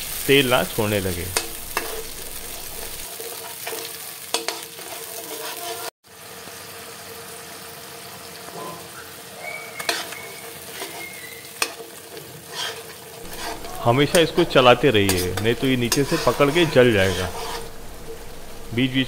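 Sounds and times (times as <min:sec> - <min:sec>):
spice paste sizzling in oil: 0:00.0 - 0:19.0
spoon scraping and knocking pan: 0:01.3 - 0:05.9, 0:11.6 - 0:18.7.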